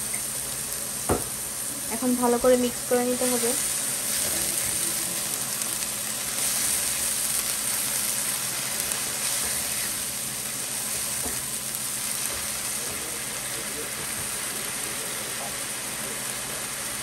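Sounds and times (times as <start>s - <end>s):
onions sizzling in hot oil: 0.0s - 17.0s
spatula stirring in pan: 3.3s - 13.0s.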